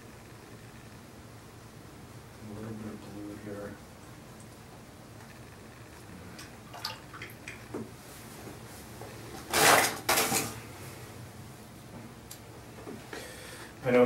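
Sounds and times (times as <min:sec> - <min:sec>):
objects clattering on desk: 0:09.4 - 0:10.6.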